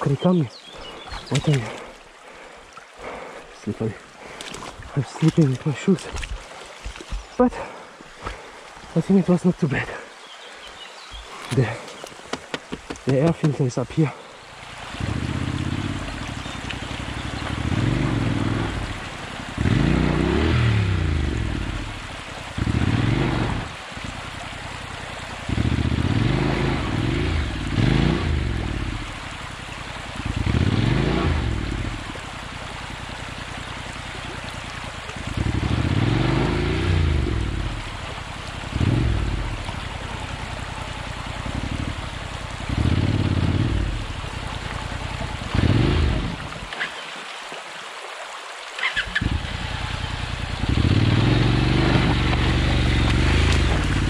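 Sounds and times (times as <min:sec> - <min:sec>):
shallow stream rushing: 0:00.0 - 0:54.0
motorcycle engine revving: 0:14.6 - 0:46.6, 0:48.9 - 0:54.0.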